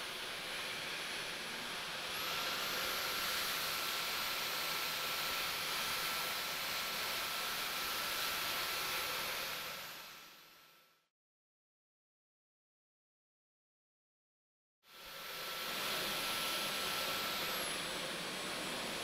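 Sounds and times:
stick vacuum running: 0.0 - 9.9, 15.2 - 19.0.

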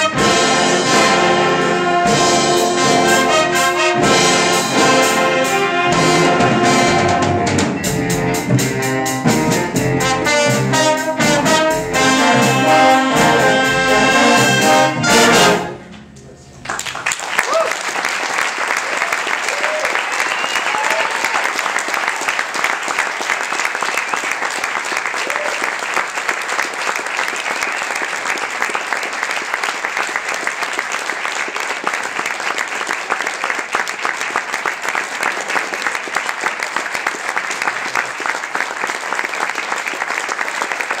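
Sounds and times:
audience applauding: 16.5 - 41.0.

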